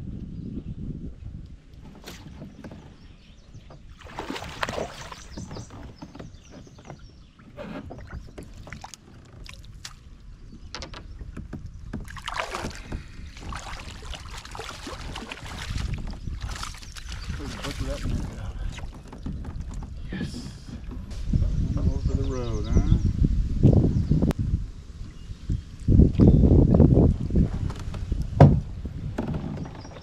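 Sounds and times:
wind rumble on microphone: 0.0 - 30.0
fish splashing at the surface: 4.0 - 5.4, 12.1 - 18.2.

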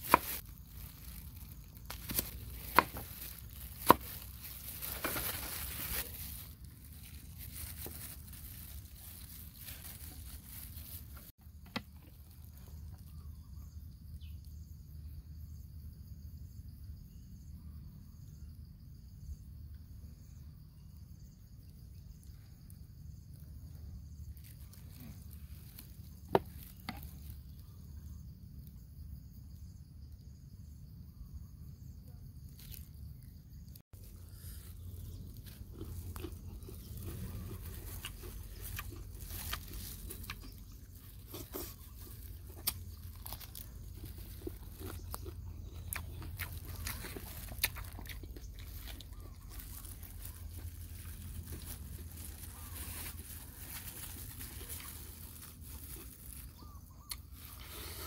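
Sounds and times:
insects chirping: 0.0 - 58.0.

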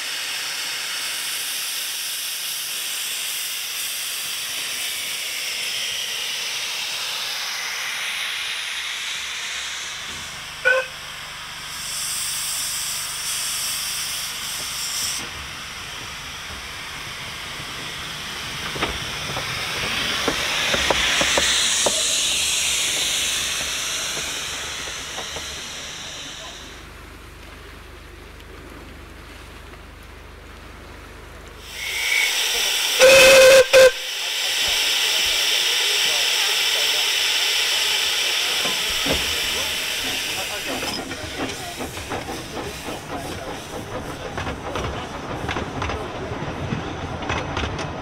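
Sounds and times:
steam hissing: 0.0 - 27.0, 31.6 - 48.0
steam whistle blast: 10.6 - 11.1, 31.7 - 34.2.

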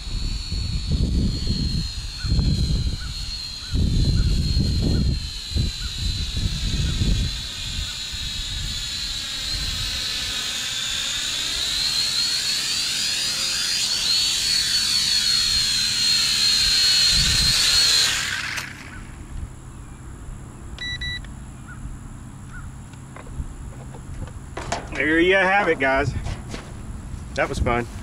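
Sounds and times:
quadcopter motors whining: 0.0 - 28.0
short beep: 20.8 - 21.2.

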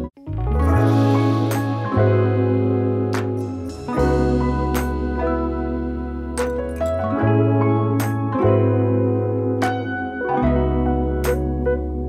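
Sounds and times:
soft instrumental music: 0.0 - 12.0
light percussive hit: 0.8 - 2.2, 3.1 - 5.4.

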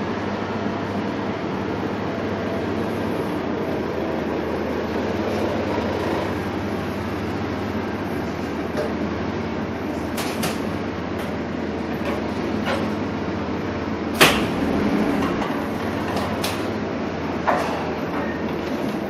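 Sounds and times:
forklift engine running: 0.0 - 19.0
short sharp machine knocks: 14.2 - 16.7.

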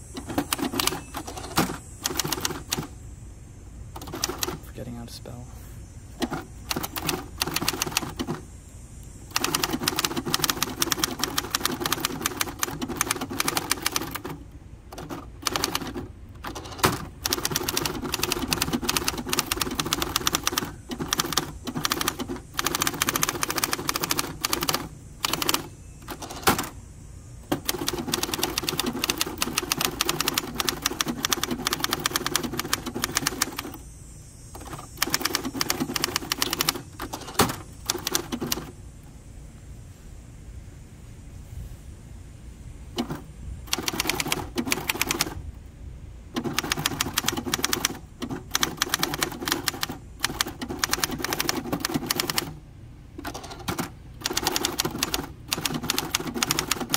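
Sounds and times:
manual typewriter typing: 0.0 - 2.9, 4.0 - 4.7, 6.2 - 8.4, 9.3 - 26.8, 27.4 - 33.8, 34.5 - 38.8, 43.0 - 45.4, 46.3 - 52.6, 53.2 - 56.9.

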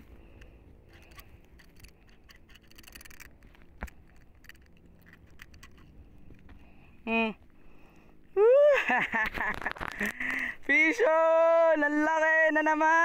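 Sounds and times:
faint scattered clicks: 0.0 - 6.7.

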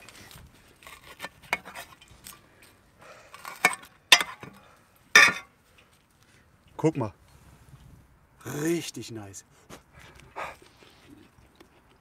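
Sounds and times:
metal tool scraping an enamel plate: 0.8 - 2.0.

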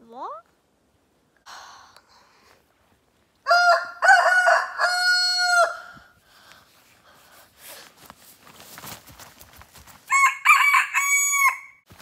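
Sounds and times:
rooster crowing: 3.4 - 6.1, 10.1 - 11.8.

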